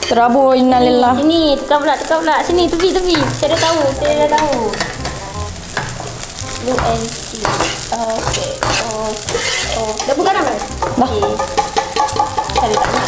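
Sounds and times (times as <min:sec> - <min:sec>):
food sizzling in hot oil: 0:00.0 - 0:13.0
spatulas scraping pans: 0:02.6 - 0:13.0.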